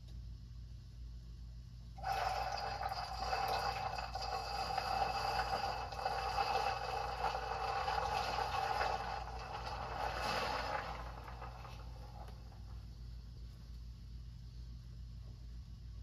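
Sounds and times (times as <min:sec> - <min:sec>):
liquid trickling into glass beaker: 0:02.0 - 0:12.6.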